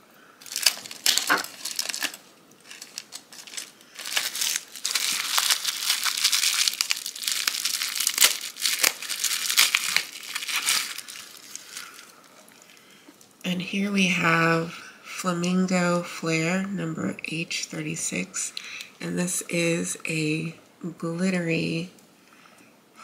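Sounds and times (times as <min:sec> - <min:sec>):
packaging crinkling and tearing: 0:00.4 - 0:13.4.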